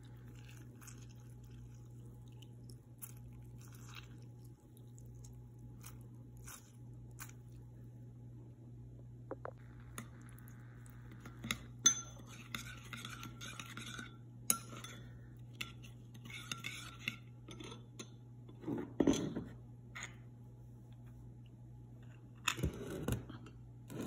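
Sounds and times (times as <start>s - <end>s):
spoon stirring in bowl: 0.0s - 7.7s, 9.9s - 18.2s
steady low hum: 0.0s - 24.0s
spoon clinking on bowl: 11.4s - 18.1s.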